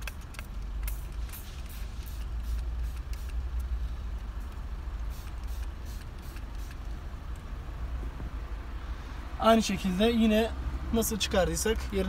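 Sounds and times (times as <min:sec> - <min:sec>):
spray bottle hisses: 0:00.8 - 0:03.5, 0:05.1 - 0:06.8.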